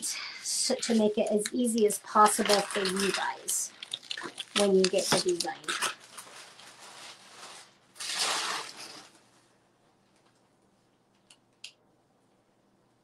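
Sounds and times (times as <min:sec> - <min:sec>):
clothing rustling: 0:02.1 - 0:09.6.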